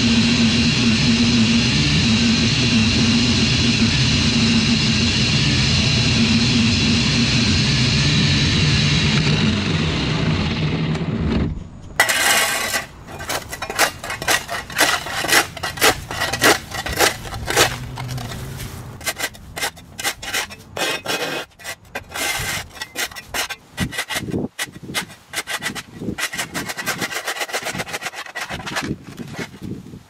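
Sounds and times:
shovel scraping concrete: 12.0s - 29.8s.

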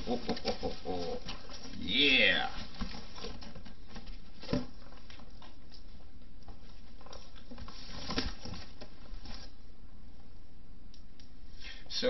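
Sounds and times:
cardboard box rustling: 0.0s - 5.3s, 6.8s - 9.6s.

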